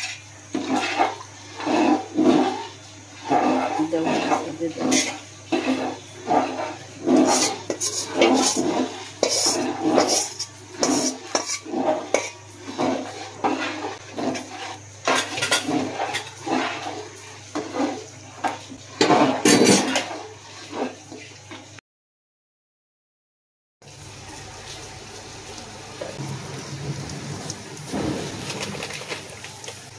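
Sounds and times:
metal spatula scraping a pot: 0.0s - 21.3s.

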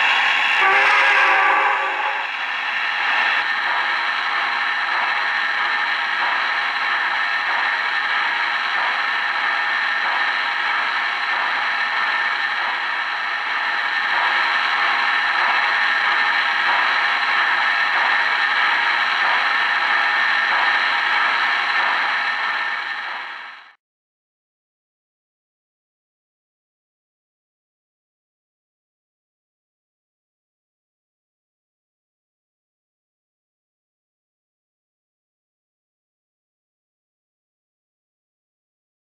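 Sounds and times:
model trains whirring and rattling: 0.0s - 23.8s.

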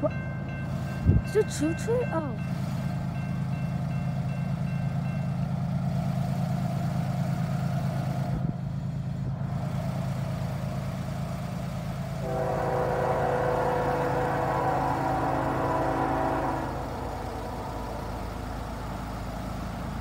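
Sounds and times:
railroad crossing bell ringing: 0.0s - 6.0s, 12.2s - 19.8s
locomotive air horn blowing: 12.2s - 18.4s.

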